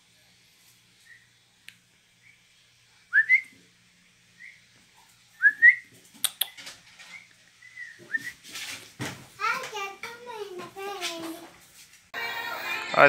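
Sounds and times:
person whistling for a dog: 3.1s - 3.5s, 5.4s - 5.8s, 7.7s - 8.4s.

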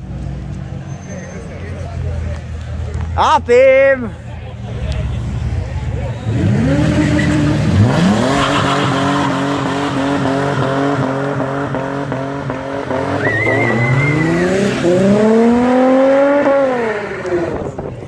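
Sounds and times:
tyre squeal: 0.8s - 1.7s, 8.2s - 10.1s, 13.1s - 14.5s
car engine revving: 5.2s - 18.0s.

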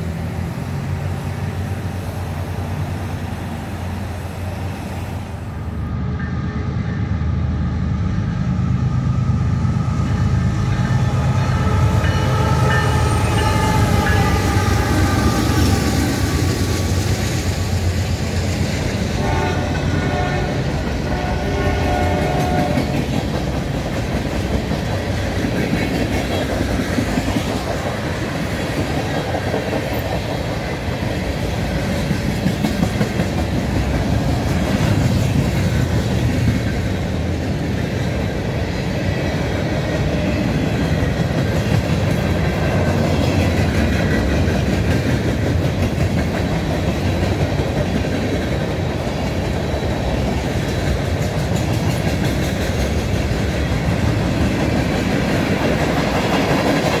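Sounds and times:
train rumbling past: 0.0s - 57.0s
train horn: 10.7s - 15.9s, 19.2s - 23.0s
wheels clacking over rails: 39.3s - 57.0s.

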